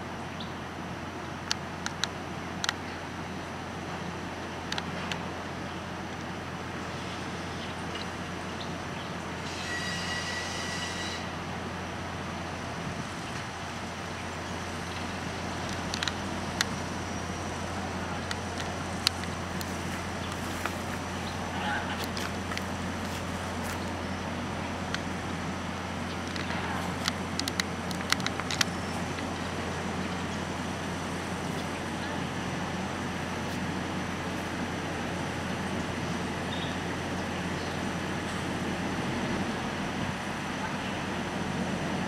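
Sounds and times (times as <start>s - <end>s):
diesel locomotive engine drone: 0.0s - 42.0s
sharp clicks: 26.2s - 29.3s.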